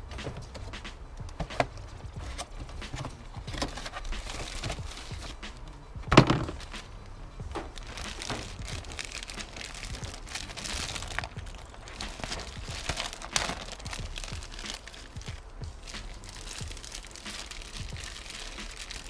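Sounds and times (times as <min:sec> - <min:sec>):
plastic bag crinkling: 0:03.5 - 0:05.4, 0:07.6 - 0:19.0.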